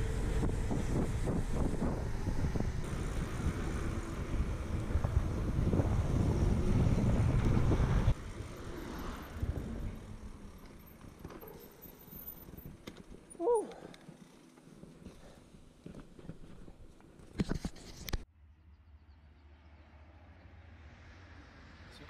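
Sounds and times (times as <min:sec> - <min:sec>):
wind buffeting microphone: 0:00.0 - 0:08.5
bike tyres rolling on road: 0:00.0 - 0:17.4.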